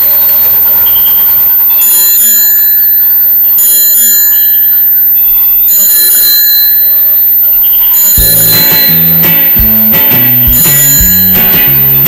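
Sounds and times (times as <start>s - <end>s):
electronic bicycle bell ring: 0.0s - 12.0s
tinny electronic jingle: 8.2s - 12.0s.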